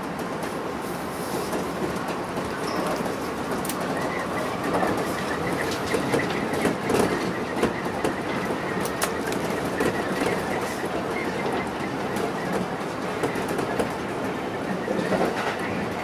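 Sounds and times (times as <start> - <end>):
train rumbling on rails: 0.0 - 16.0
wheels clicking over rail joints: 1.5 - 16.0.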